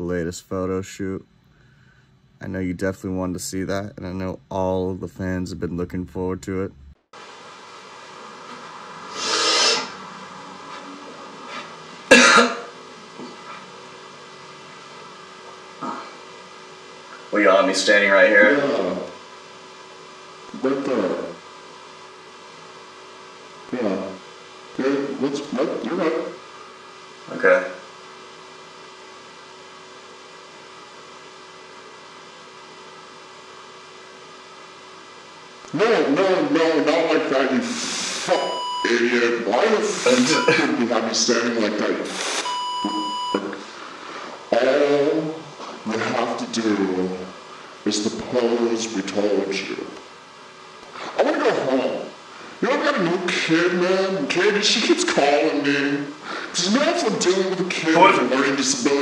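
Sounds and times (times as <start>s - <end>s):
low electrical hum: 0.0s - 59.0s
person coughing: 12.1s - 12.7s, 40.0s - 40.8s.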